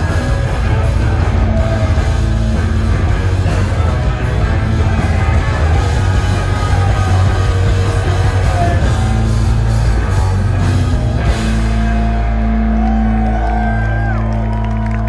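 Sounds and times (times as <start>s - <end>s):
person singing: 0.0s - 10.8s
live rock band: 0.0s - 15.0s.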